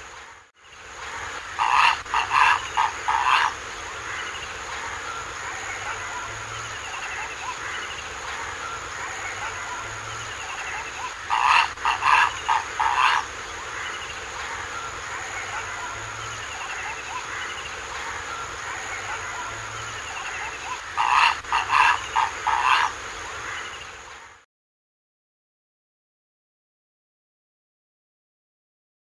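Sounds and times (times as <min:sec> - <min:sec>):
heron croaking calls: 0:01.4 - 0:04.4, 0:09.0 - 0:14.2, 0:18.5 - 0:23.8.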